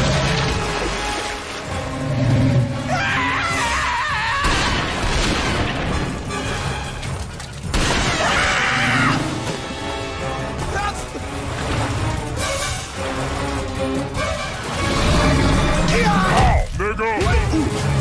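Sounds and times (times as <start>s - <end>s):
heavy water splashes: 0.0s - 18.0s.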